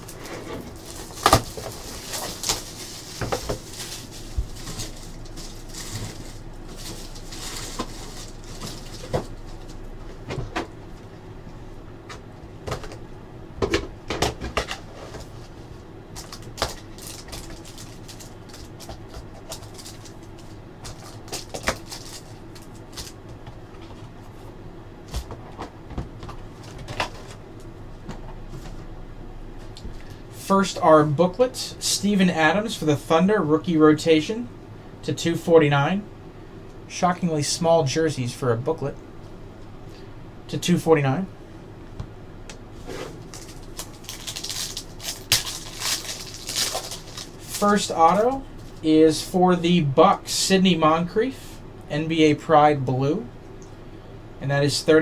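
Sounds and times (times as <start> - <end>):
shrink-wrap crinkling and tearing: 0.0 - 9.8, 16.2 - 23.2, 43.1 - 48.8.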